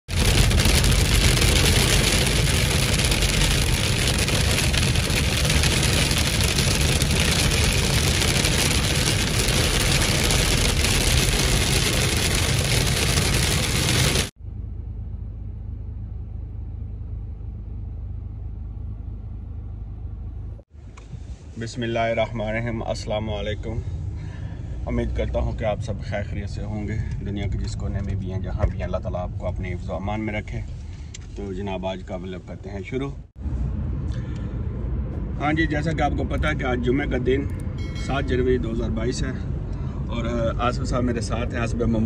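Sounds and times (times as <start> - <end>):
road rumble: 0.0 - 42.0
hail pelting car roof: 0.1 - 14.3.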